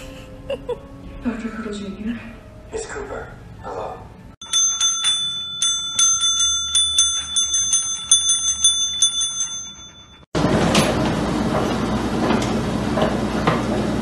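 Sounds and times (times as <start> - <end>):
service bell dinging: 4.4 - 10.3.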